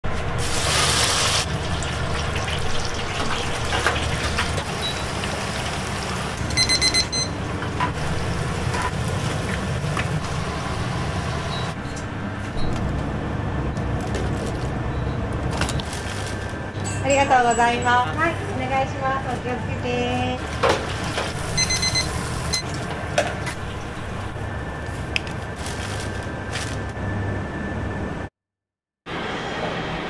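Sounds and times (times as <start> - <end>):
low kitchen hum: 0.0 - 28.3
oil sizzling in deep fryer: 0.1 - 11.8, 20.4 - 25.1.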